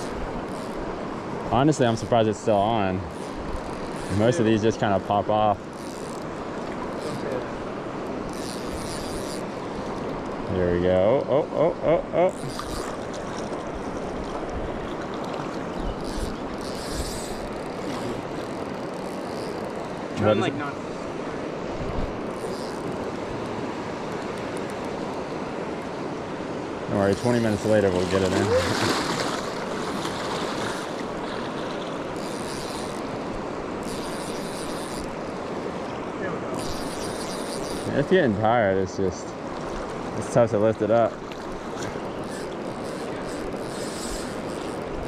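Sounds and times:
river water rushing: 12.3 - 45.0.

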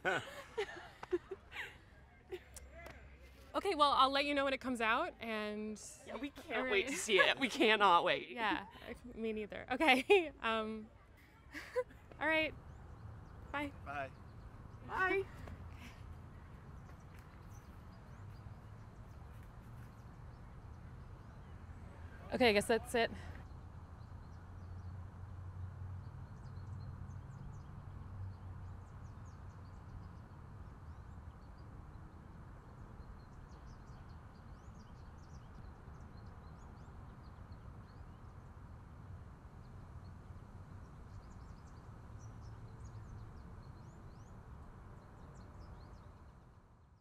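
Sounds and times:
distant traffic hum: 0.0 - 46.8
small birds chirping: 12.0 - 25.1.

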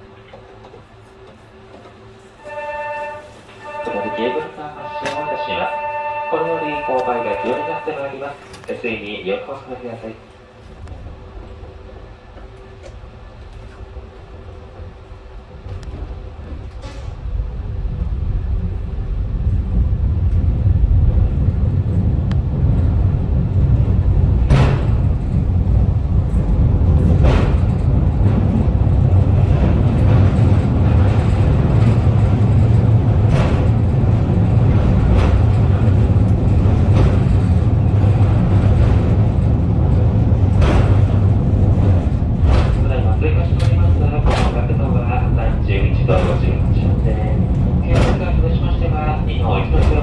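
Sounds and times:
rail car rumbling in tunnel: 0.0 - 50.0
sharp rail clacks: 26.3 - 45.4, 47.5 - 48.8.

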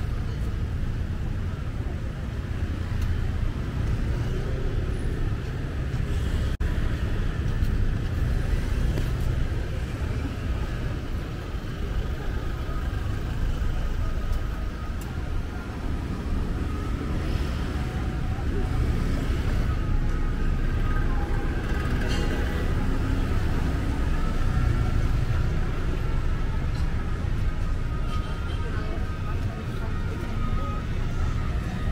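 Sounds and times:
passing cars and motorbikes: 0.0 - 31.9.

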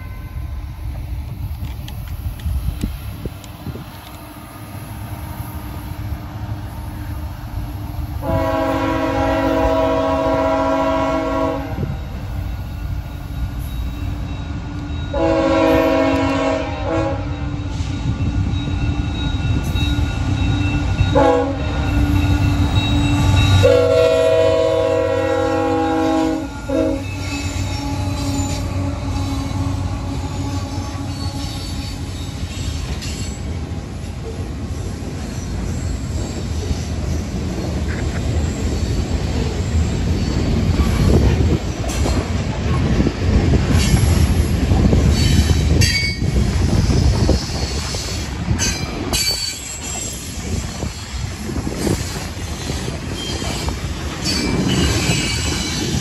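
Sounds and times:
train horn: 0.0 - 0.6, 8.2 - 12.1, 14.8 - 17.8, 21.0 - 32.2
diesel locomotive rumble: 0.0 - 56.0
train rolling on rails: 0.0 - 56.0.

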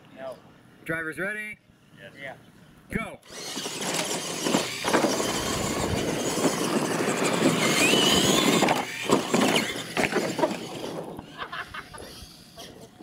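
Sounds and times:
rc truck motors whining: 3.2 - 13.0
trucks landing knocks: 3.6 - 11.4.

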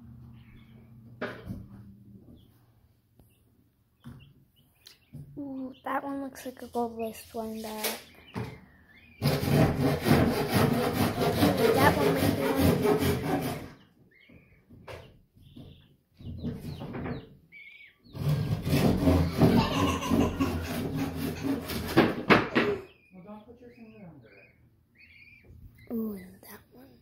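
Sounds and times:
rough rubbing and scraping: 6.6 - 8.1, 9.2 - 13.9, 18.2 - 22.4.

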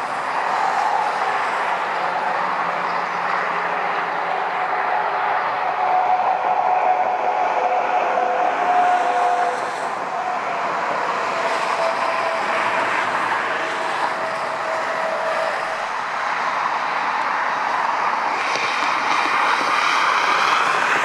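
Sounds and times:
distant jet engines taxiing: 0.0 - 21.0
faint jet whine: 0.0 - 21.0.

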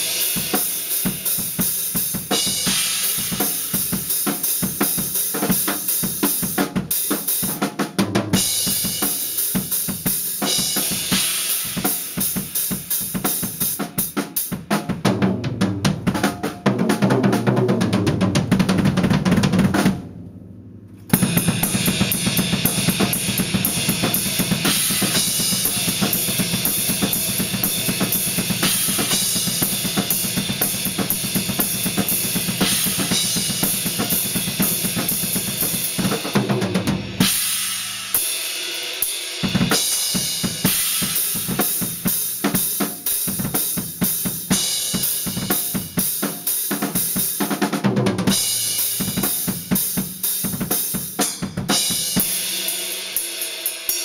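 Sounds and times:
snare and cymbals: 0.0 - 20.0, 21.0 - 54.0
bass drum: 14.7 - 38.0.

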